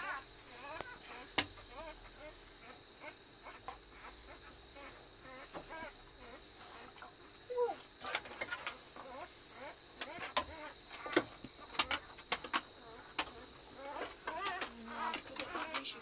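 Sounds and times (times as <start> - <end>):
puppies squeaking and whimpering: 3.4 - 16.0.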